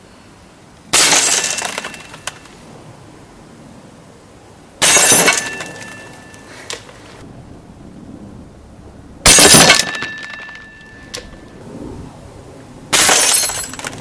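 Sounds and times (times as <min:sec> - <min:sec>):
wine glass shattering: 0:04.8 - 0:06.1, 0:13.0 - 0:13.9
high ringing tone: 0:09.3 - 0:11.6.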